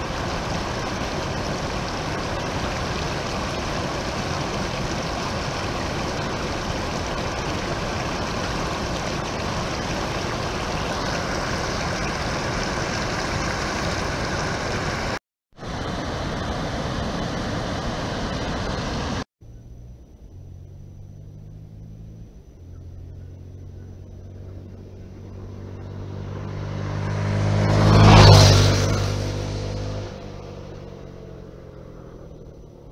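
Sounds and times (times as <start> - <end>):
river rapids rushing over rock: 0.0 - 19.2
dirt bike engine passing: 24.4 - 32.7.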